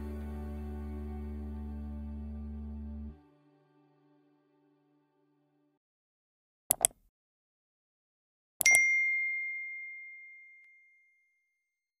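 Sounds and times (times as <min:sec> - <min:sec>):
quick clicks: 0:06.7 - 0:07.0
bright bell ding: 0:08.6 - 0:11.4.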